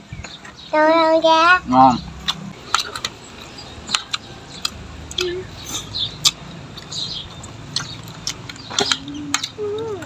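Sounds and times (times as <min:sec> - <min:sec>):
chewing: 0:02.2 - 0:10.0.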